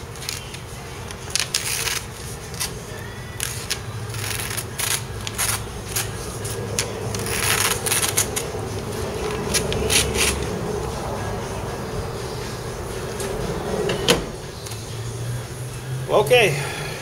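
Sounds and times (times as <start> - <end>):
steady low hum: 0.0 - 17.0
paper rustling and crinkling: 0.1 - 10.4.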